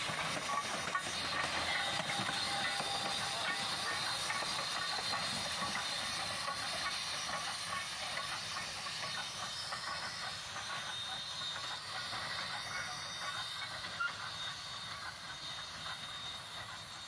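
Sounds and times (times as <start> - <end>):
steady hissing: 0.0 - 17.0
train passing on rails: 0.0 - 17.0.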